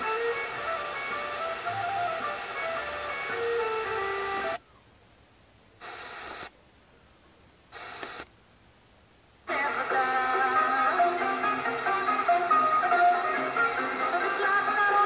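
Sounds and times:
snatches of station audio: 0:05.8 - 0:06.5, 0:07.7 - 0:08.3
radio station music: 0:09.5 - 0:15.0.

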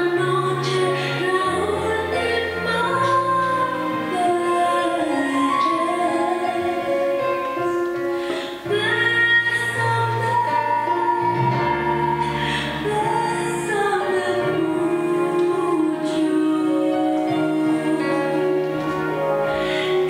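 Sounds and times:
instrumental accompaniment: 0:00.0 - 0:20.0
woman singing long notes: 0:08.5 - 0:18.9.

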